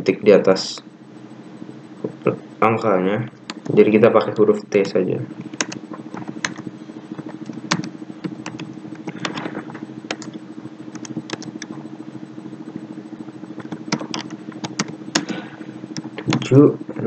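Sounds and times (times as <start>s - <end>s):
steady low hum: 0.0s - 17.0s
keyboard keystrokes: 3.4s - 3.8s, 4.4s - 6.6s, 7.2s - 9.5s, 10.1s - 11.8s, 13.6s - 15.3s, 15.9s - 16.5s.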